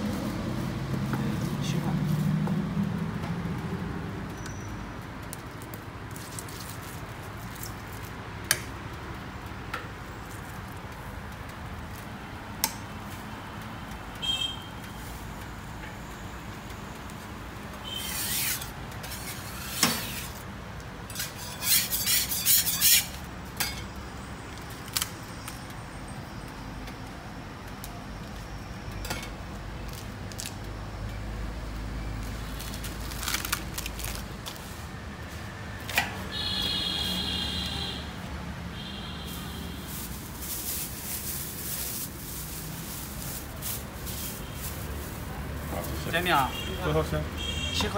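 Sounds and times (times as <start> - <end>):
metal spatula scraping griddle: 17.9 - 20.4, 21.1 - 23.8.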